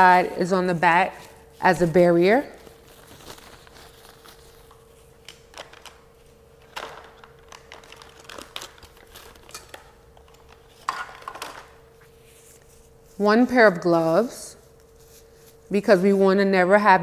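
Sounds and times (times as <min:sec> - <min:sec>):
paper and plastic crinkling: 0:00.3 - 0:13.3.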